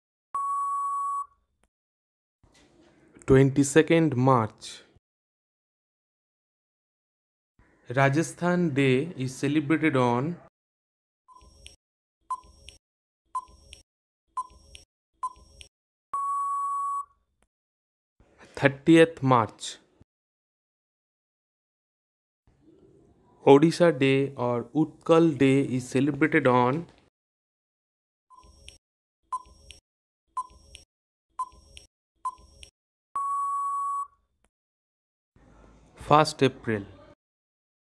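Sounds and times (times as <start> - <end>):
long steady beep: 0.4 - 1.4, 16.2 - 17.1, 33.2 - 34.2
timer beep and tick: 0.4 - 1.4, 11.3 - 12.8, 13.4 - 13.8, 14.4 - 17.1, 28.3 - 29.8, 30.4 - 34.1.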